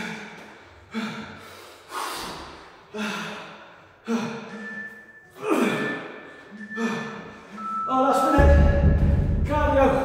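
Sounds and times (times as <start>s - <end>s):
man breathing forcefully: 0.0s - 4.8s.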